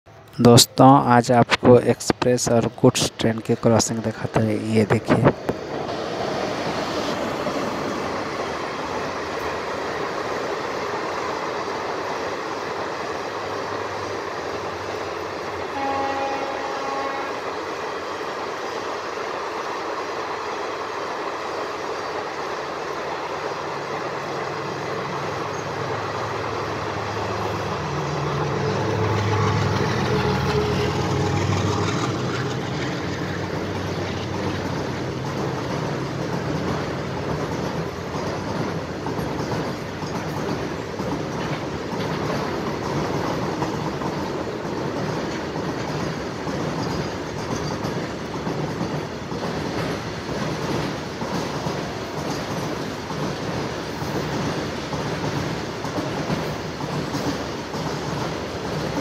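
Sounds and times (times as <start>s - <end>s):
goods train rumbling past: 0.1s - 59.0s
wheels clacking over rail joints: 17.9s - 59.0s.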